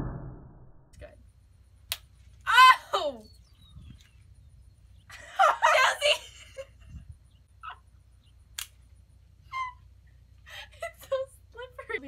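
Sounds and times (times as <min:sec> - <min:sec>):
girls shrieking and laughing: 0:05.1 - 0:06.7.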